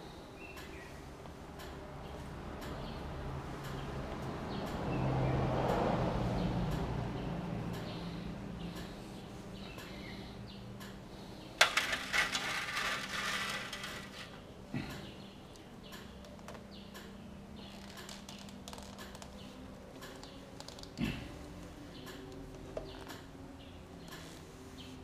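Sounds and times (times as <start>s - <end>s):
metal tools clicking and scraping: 11.6s - 14.4s.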